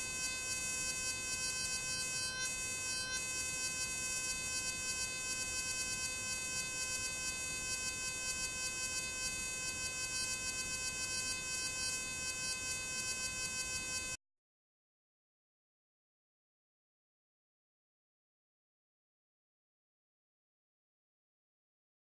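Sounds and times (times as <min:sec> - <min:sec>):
electric arc buzzing: 0:00.0 - 0:14.2.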